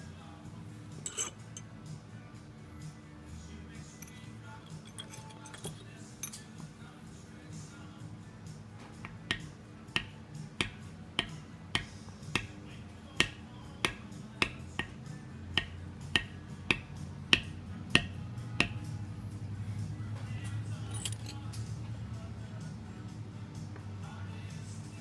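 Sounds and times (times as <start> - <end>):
maul tapping stamping tool into leather: 8.8 - 18.9.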